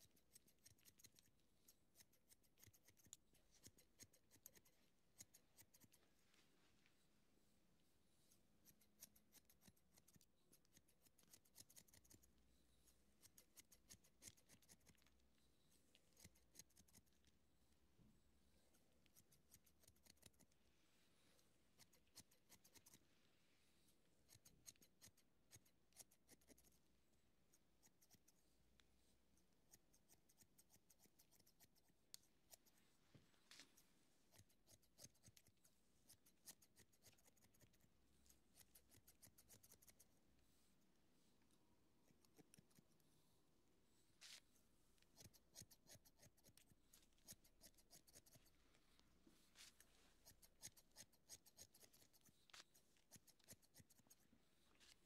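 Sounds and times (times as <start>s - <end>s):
scissors snipping hair: 0.0s - 6.0s, 8.6s - 12.3s, 13.2s - 15.2s, 16.0s - 17.4s, 19.1s - 20.6s, 21.7s - 23.0s, 24.2s - 26.8s, 29.4s - 32.8s, 33.5s - 40.0s, 45.0s - 48.6s, 49.6s - 54.2s.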